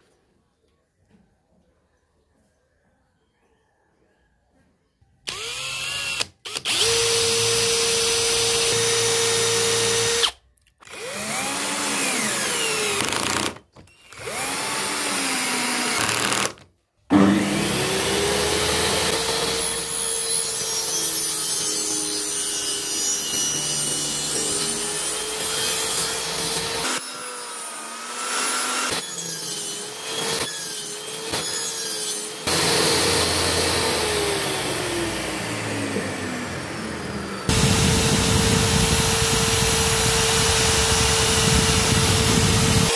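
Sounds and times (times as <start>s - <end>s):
cordless drill boring into wood: 5.3s - 16.6s, 17.4s - 20.1s, 24.2s - 42.9s
table saw motor running: 17.1s - 20.0s, 31.1s - 42.9s.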